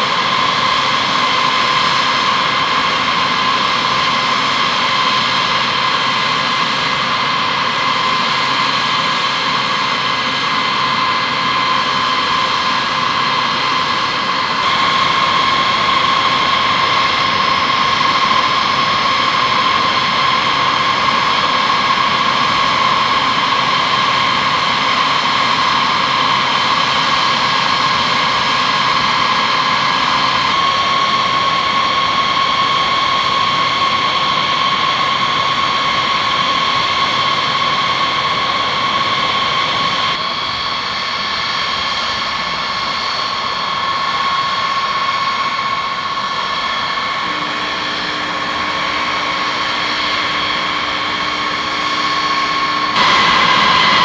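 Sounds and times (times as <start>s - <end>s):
jet engines whining: 0.0s - 54.0s.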